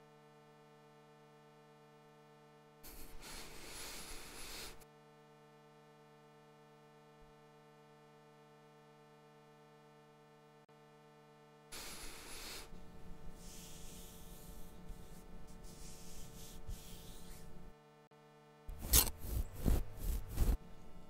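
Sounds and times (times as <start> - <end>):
faint steady hum: 0.0 - 21.0
hand rubbing plush fur: 11.8 - 17.7, 18.7 - 20.6.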